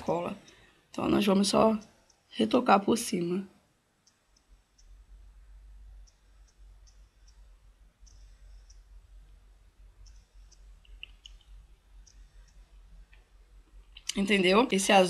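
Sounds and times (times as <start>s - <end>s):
low steady hum: 0.0s - 15.0s
faint small clicks: 1.8s - 2.2s, 4.0s - 5.1s, 5.9s - 9.4s, 10.0s - 14.2s.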